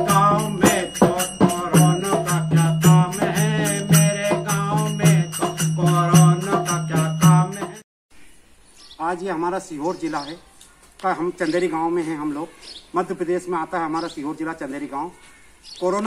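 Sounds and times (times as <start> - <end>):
hand drum beat: 0.0 - 7.8
jingling hand cymbals: 0.0 - 7.8
man singing folk song: 0.0 - 7.8.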